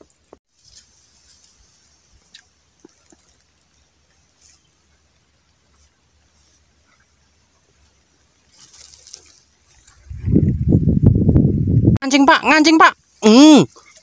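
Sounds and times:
soft rustle: 0:00.2 - 0:10.8.

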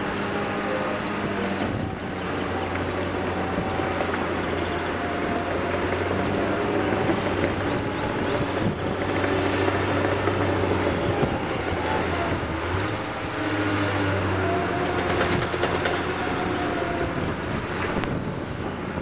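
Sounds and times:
heavy diesel engines droning: 0:00.0 - 0:19.0
wind noise on microphone: 0:00.0 - 0:19.0.

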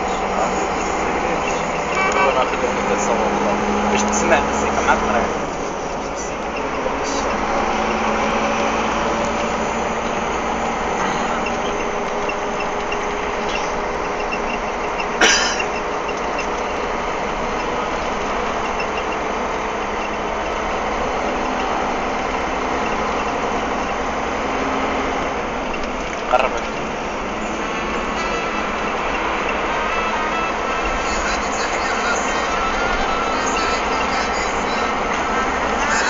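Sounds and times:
truck engine and road noise: 0:00.0 - 0:36.0.

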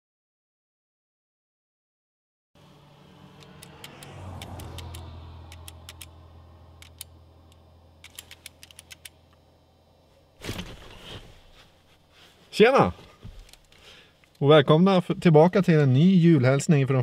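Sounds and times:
car cabin hum: 0:02.6 - 0:13.7.

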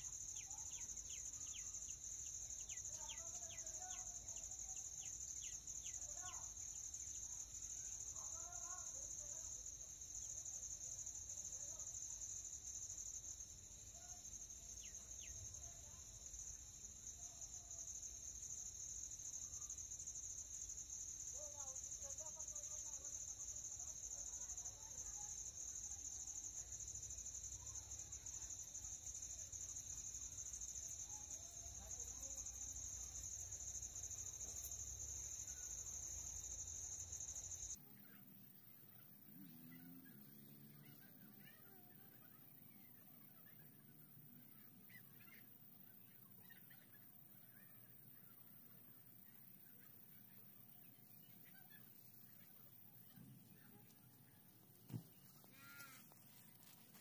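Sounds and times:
crickets trilling: 0:00.0 - 0:57.0.

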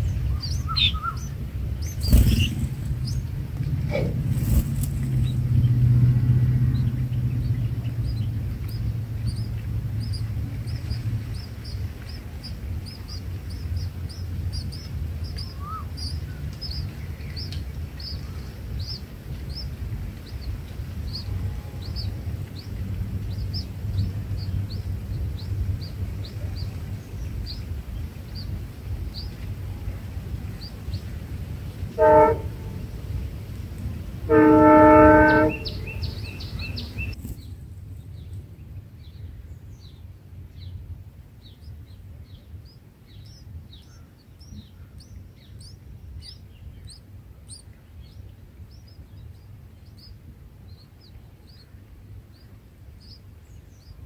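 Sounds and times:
high bird chirps: 0:00.0 - 0:03.4, 0:34.4 - 0:37.2
steady low rumble: 0:00.0 - 0:54.0
train horn blast: 0:21.3 - 0:22.1, 0:31.9 - 0:33.0, 0:34.2 - 0:37.0.

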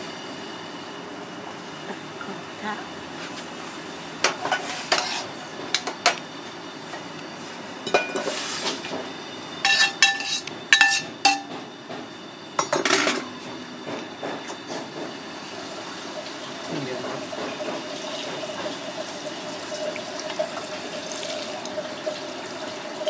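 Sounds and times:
metal spoon clinking in saucepan: 0:09.6 - 0:11.5.

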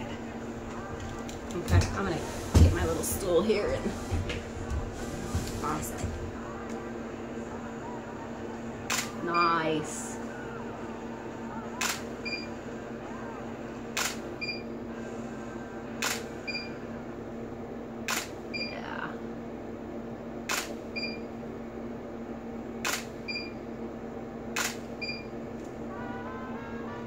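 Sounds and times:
steady low hum: 0:00.0 - 0:27.0
camera shutter firing: 0:08.9 - 0:09.1, 0:14.0 - 0:14.2, 0:16.0 - 0:16.2, 0:18.1 - 0:18.3, 0:20.5 - 0:20.7, 0:22.8 - 0:23.1, 0:24.6 - 0:24.9.

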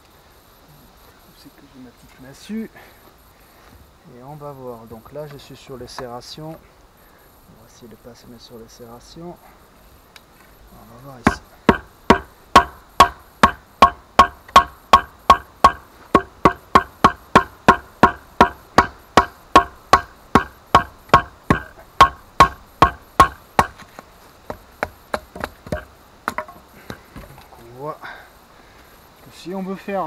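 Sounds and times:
wooden club knocking on knife: 0:11.3 - 0:23.8.

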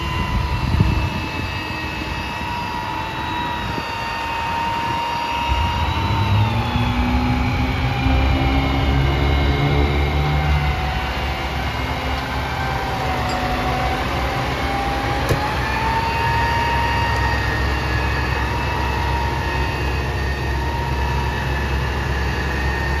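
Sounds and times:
hydraulic crane whine: 0:00.0 - 0:23.0
diesel engine running: 0:05.2 - 0:23.0.

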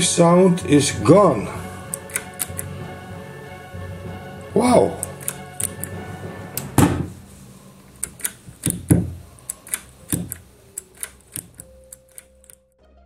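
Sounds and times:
heavy switch clunks: 0:01.9 - 0:02.7
push-button sharp clicks: 0:01.9 - 0:02.7, 0:05.0 - 0:06.0, 0:08.0 - 0:12.6.

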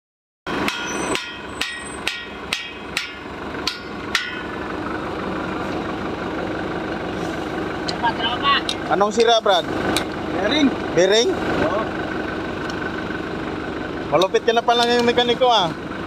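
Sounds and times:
hammer striking metal: 0:00.5 - 0:04.8.

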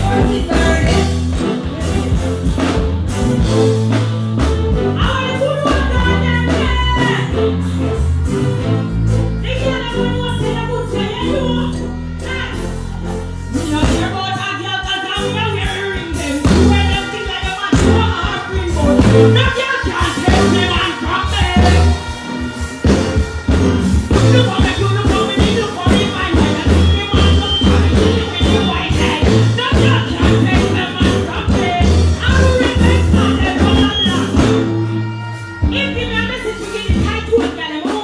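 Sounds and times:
woman singing into a microphone: 0:00.0 - 0:02.2, 0:13.6 - 0:22.0
held bass line: 0:00.0 - 0:37.9
live band music: 0:00.0 - 0:38.0.

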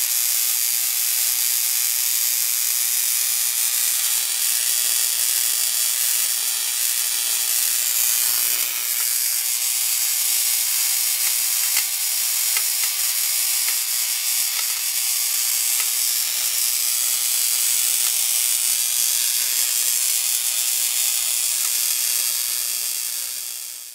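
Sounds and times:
electrical discharge sizzling: 0:07.8 - 0:09.4
faint electrical snaps: 0:11.2 - 0:11.9, 0:14.4 - 0:16.2.

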